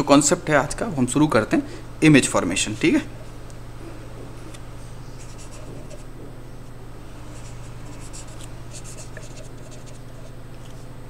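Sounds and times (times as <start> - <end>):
steady low hum: 0.0 - 11.0
pen scratching on paper: 5.2 - 6.1, 7.3 - 10.4.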